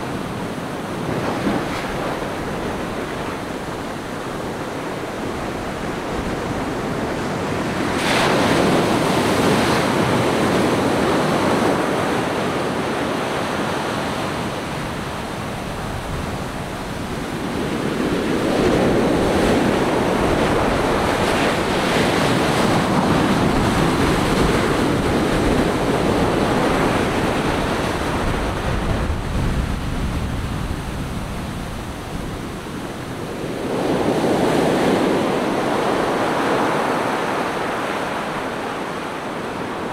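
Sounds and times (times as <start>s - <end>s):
ocean surf breaking on beach: 0.0s - 39.9s.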